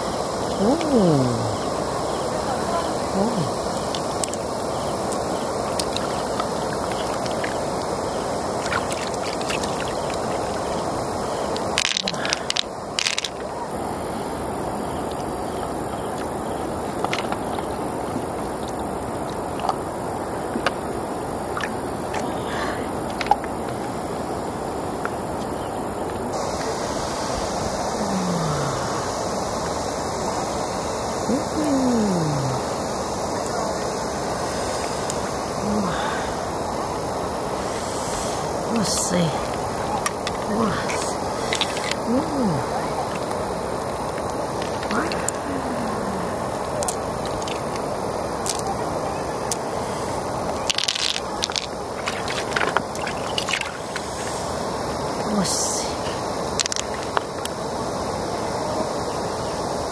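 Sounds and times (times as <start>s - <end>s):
river water rushing: 0.0s - 59.9s
pearls clicking on shell: 11.8s - 13.4s, 50.6s - 53.8s.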